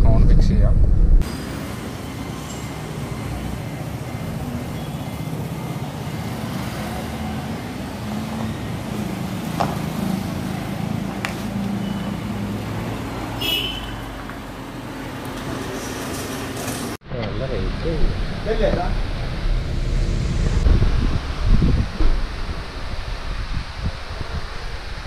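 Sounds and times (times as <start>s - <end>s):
passing cars and motorbikes: 1.2s - 25.0s.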